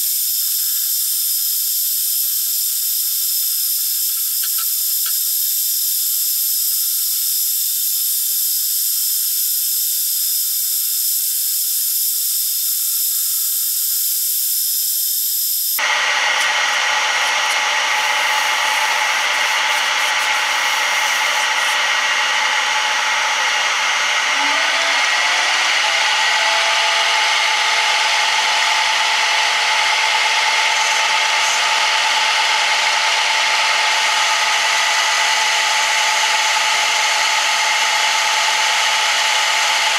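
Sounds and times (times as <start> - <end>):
hiss of cutting metal: 0.0 - 14.2
metal lathe whine: 0.0 - 39.9.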